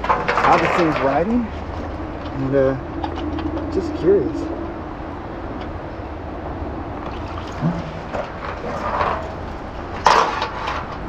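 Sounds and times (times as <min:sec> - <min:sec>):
rope clattering against metal rail: 0:00.0 - 0:01.7, 0:07.4 - 0:11.0.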